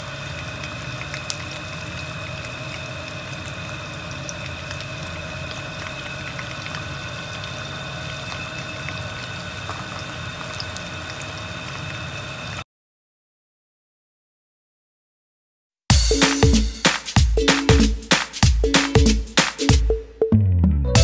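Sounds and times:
oil sizzling with pops: 0:00.0 - 0:12.6.

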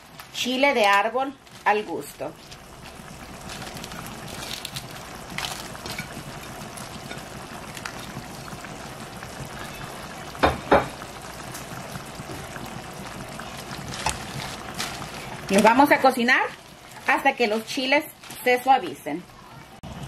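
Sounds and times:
sauce simmering and bubbling: 0:01.4 - 0:18.2.

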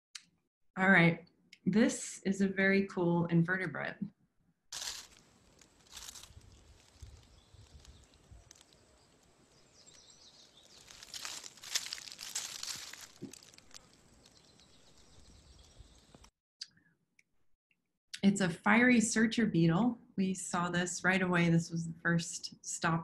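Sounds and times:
dry leaves rustling and crunching: 0:04.8 - 0:15.6.

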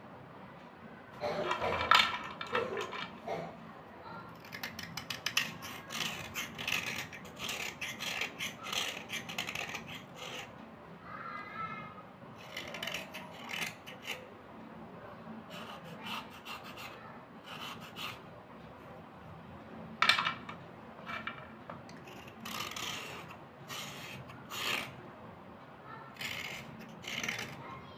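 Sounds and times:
knife scraping slate pencils: 0:01.4 - 0:03.4, 0:04.4 - 0:10.5, 0:12.4 - 0:14.3, 0:15.5 - 0:18.2, 0:21.1 - 0:25.0, 0:26.2 - 0:27.7.

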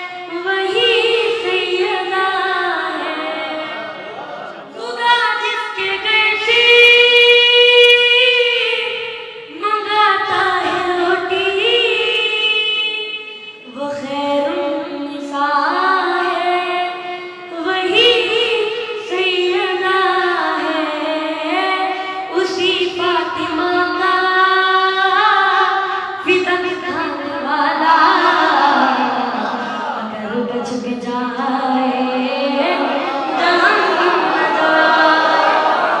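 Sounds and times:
boy singing into a microphone: 0:00.0 - 0:04.0, 0:04.7 - 0:35.9.

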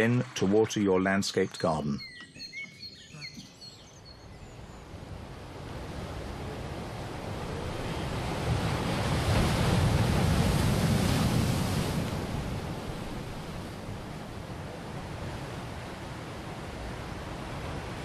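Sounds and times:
surf breaking on rocks: 0:05.3 - 0:18.0.

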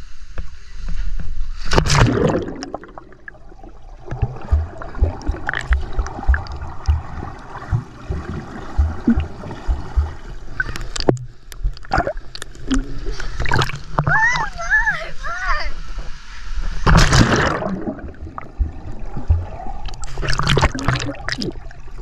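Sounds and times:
muffled underwater gurgling: 0:02.0 - 0:11.1
low thumps against camera: 0:04.1 - 0:12.1, 0:18.1 - 0:20.5
camera splashing into water: 0:16.8 - 0:18.3.

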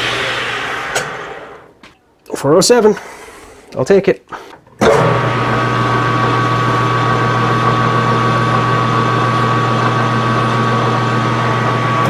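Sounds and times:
metal lathe humming and whining: 0:04.9 - 0:12.0.

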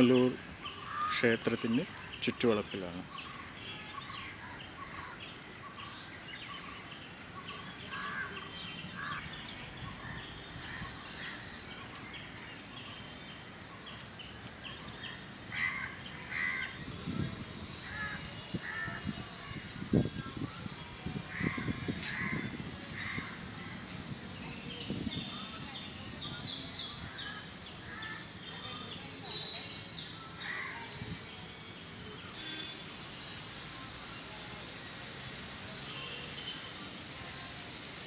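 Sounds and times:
crows cawing: 0:00.8 - 0:01.3, 0:07.9 - 0:08.4, 0:09.0 - 0:09.2, 0:15.5 - 0:16.8, 0:21.3 - 0:23.4, 0:30.4 - 0:30.8.

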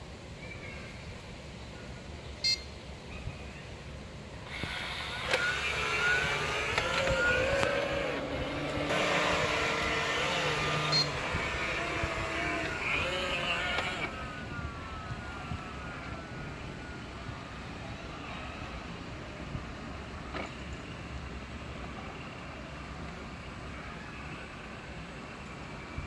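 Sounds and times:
short beep: 0:02.4 - 0:02.7
robot vacuum motor whine: 0:04.5 - 0:14.4.

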